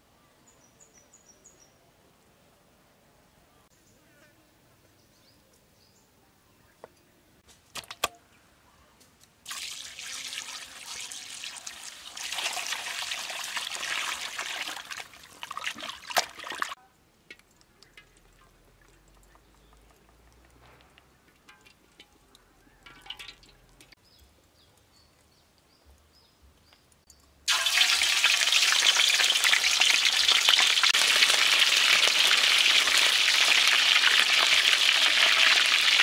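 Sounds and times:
water pouring into a basin: 0:09.5 - 0:16.8, 0:27.5 - 0:36.0.

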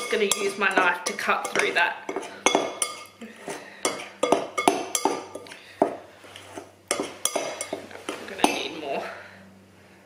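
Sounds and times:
knife clinking against glass bowl: 0:00.0 - 0:03.2, 0:03.8 - 0:05.5, 0:06.9 - 0:08.7.

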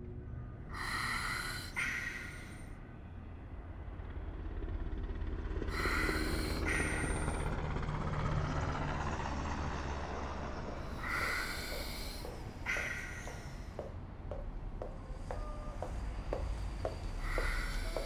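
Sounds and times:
breathing through oxygen mask: 0:00.8 - 0:02.6, 0:05.7 - 0:07.4, 0:10.9 - 0:13.7, 0:16.6 - 0:18.0.

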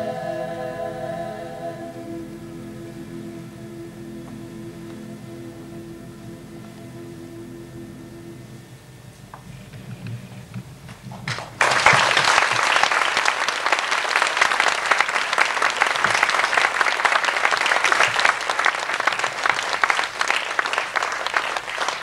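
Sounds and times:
audience applauding: 0:10.9 - 0:22.0.

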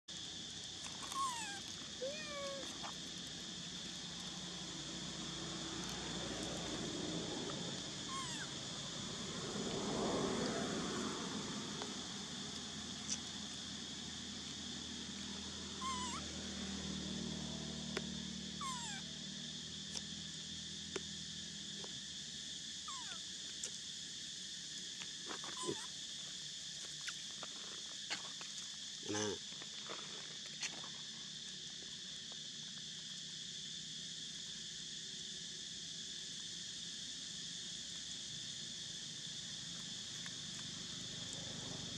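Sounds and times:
insects droning: 0:00.1 - 0:41.9
squeaking calls: 0:08.1 - 0:08.5, 0:15.8 - 0:16.2.

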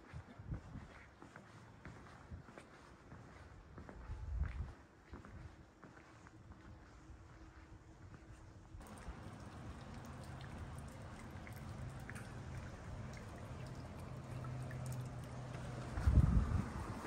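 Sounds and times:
wind rumble on microphone: 0:00.0 - 0:01.1, 0:03.6 - 0:05.6, 0:06.8 - 0:17.0
water trickling in a canal: 0:08.8 - 0:17.0.

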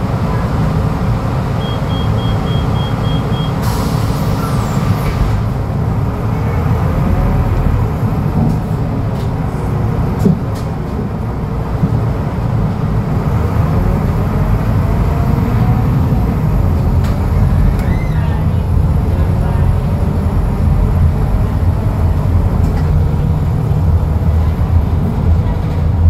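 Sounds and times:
bus engine rumble and whine: 0:00.0 - 0:26.0.

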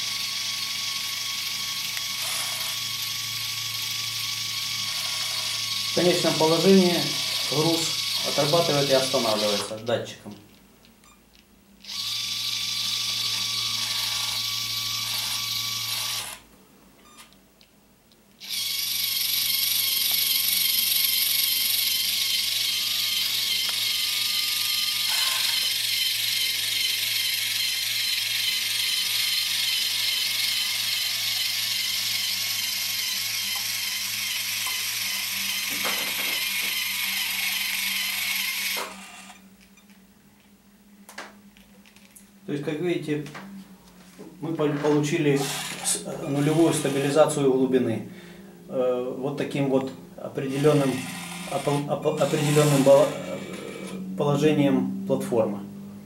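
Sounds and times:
small electric motor whining: 0:00.0 - 0:09.8, 0:11.8 - 0:16.5, 0:18.4 - 0:40.0, 0:44.8 - 0:48.4, 0:50.3 - 0:54.4.

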